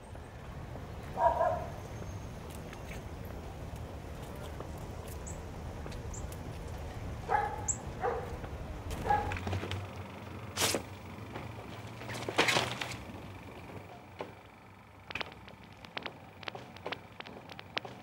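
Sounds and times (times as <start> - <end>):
low steady hum: 0.0 - 18.0
dog barking: 1.2 - 1.8, 7.3 - 8.4, 9.0 - 9.5.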